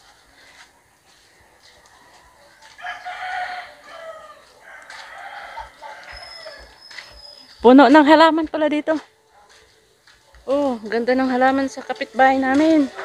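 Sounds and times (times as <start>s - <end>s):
rooster crowing: 2.7s - 6.8s.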